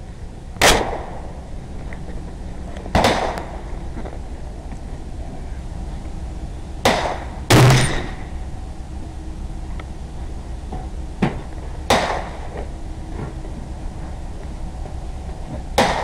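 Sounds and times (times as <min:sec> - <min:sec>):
rifle shots: 0:00.6 - 0:01.1, 0:03.0 - 0:03.4, 0:06.8 - 0:08.2, 0:11.9 - 0:12.4, 0:15.8 - 0:16.0.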